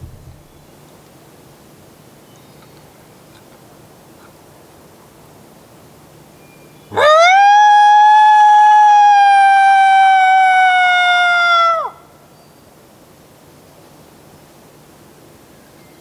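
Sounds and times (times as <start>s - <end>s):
coyote howl call: 6.9s - 12.0s.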